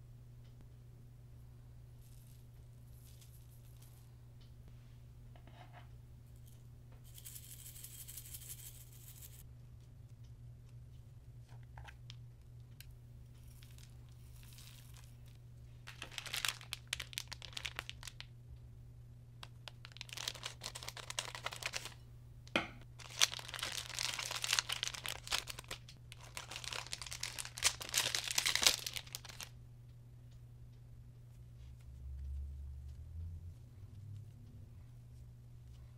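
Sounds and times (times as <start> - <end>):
plastic wrapper crinkling and tearing: 13.4 - 18.3, 19.4 - 22.0, 23.0 - 29.5.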